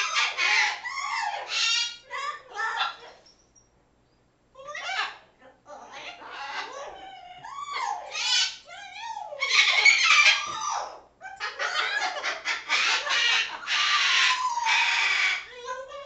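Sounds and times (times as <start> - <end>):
parrots squawking: 0.0 - 3.3, 4.6 - 5.2, 5.8 - 16.0
parrots whistling and chattering: 0.0 - 3.6, 5.8 - 16.0.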